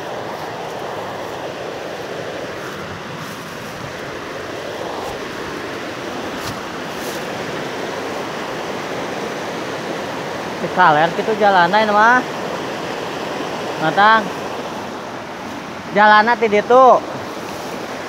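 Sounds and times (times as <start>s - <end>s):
river rushing over rocks: 0.0s - 18.0s.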